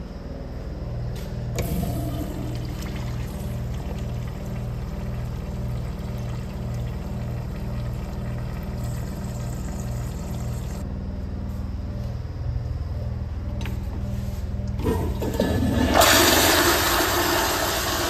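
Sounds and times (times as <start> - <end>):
low pulsing hum: 0.0 - 16.0
urinal flushing: 1.6 - 10.8, 14.8 - 18.0.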